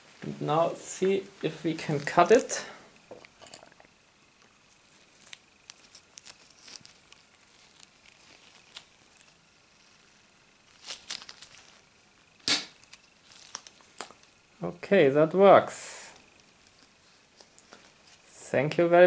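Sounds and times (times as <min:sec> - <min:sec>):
gloved hands rustling: 0:04.3 - 0:14.6, 0:16.2 - 0:18.3.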